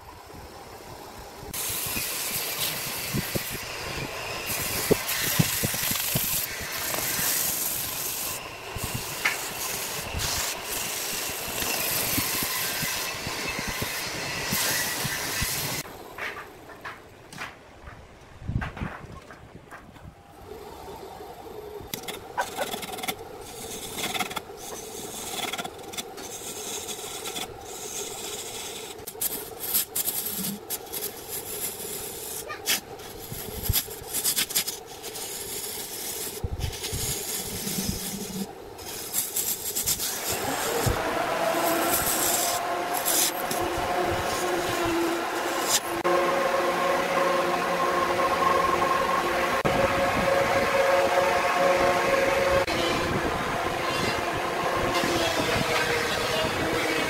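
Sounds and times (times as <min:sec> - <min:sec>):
chisel scraping wood: 0:21.9 - 0:46.0
wood lathe humming: 0:39.6 - 0:57.0.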